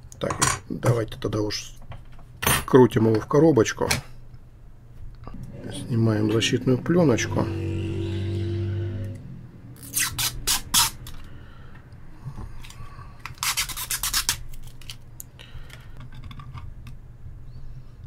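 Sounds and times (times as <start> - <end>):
plastic film peeling: 13.2 - 15.1.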